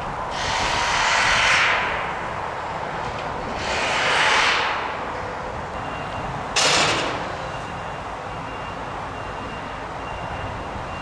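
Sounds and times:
steady low rumble: 0:00.0 - 0:06.6
loud bursts of hissing: 0:00.3 - 0:02.2, 0:03.6 - 0:04.9.

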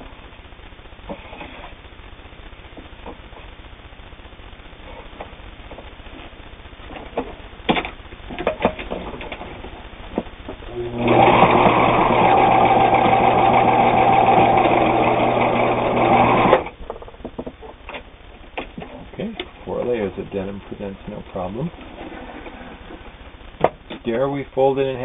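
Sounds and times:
sewing machine stitching: 0:10.8 - 0:16.7.

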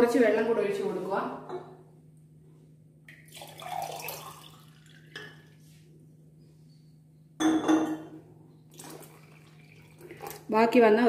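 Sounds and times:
steady low hum: 0:00.0 - 0:10.6
water being poured: 0:03.1 - 0:05.5, 0:08.7 - 0:10.5
glassware clinking: 0:05.0 - 0:05.4, 0:07.4 - 0:08.2.

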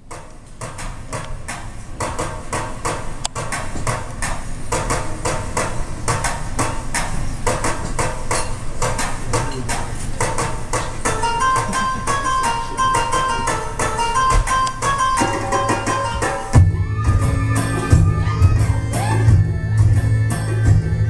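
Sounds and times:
sharp percussion hits: 0:00.0 - 0:20.9
plucked melody: 0:11.1 - 0:20.9.

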